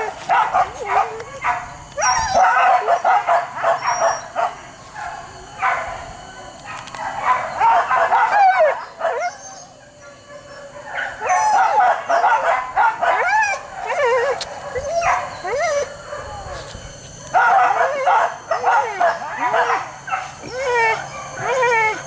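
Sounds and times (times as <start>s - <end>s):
dogs baying and howling: 0.0s - 22.0s.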